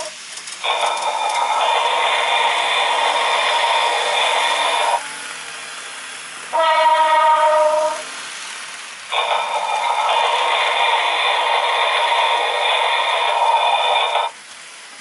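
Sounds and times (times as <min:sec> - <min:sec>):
model train running: 0:00.0 - 0:15.0
model train horn: 0:06.5 - 0:08.1.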